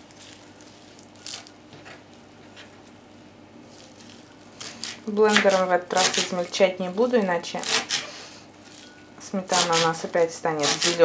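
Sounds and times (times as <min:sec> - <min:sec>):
faint steady hum: 0:00.0 - 0:11.0
knife chopping herbs on wood: 0:04.7 - 0:06.4, 0:09.5 - 0:11.0.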